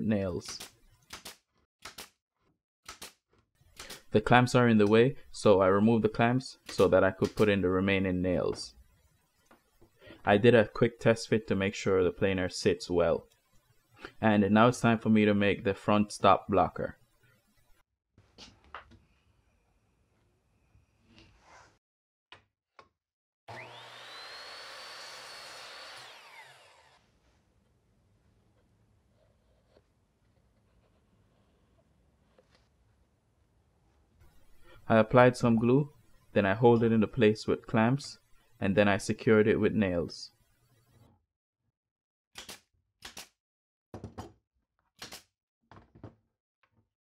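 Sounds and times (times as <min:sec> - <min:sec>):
nail gun shots: 0:00.5 - 0:02.2, 0:02.9 - 0:03.2, 0:42.4 - 0:43.4
miter saw motor whining: 0:23.5 - 0:27.0.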